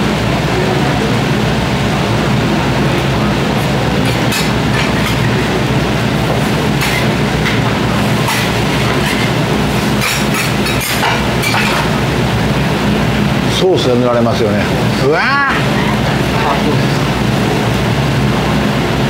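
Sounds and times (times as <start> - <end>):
rumbling hiss of hot griddle: 0.0 - 19.0.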